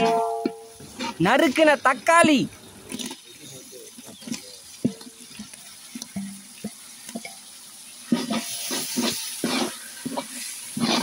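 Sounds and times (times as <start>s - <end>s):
oil sizzling: 0.0s - 11.0s
ladle scraping pot: 8.1s - 11.0s.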